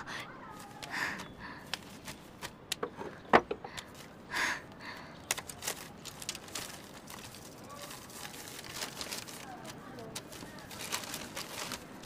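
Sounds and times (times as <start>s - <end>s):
paper envelope rustling: 0.5s - 1.0s, 5.2s - 12.0s.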